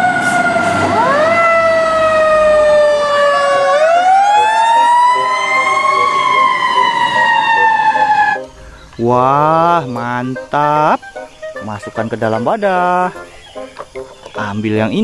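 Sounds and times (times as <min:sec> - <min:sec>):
fire truck sirens wailing: 0:00.0 - 0:12.0.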